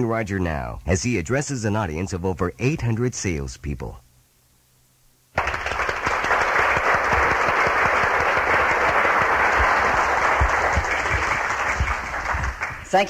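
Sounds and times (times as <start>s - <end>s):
large audience applauding: 5.4s - 13.0s.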